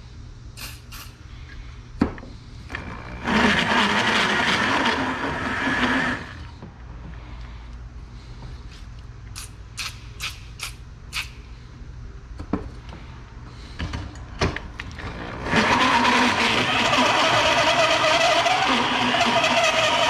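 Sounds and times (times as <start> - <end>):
spray can hissing: 0.6 - 1.2
drill hole saw cutting metal: 3.1 - 6.4, 15.2 - 20.0.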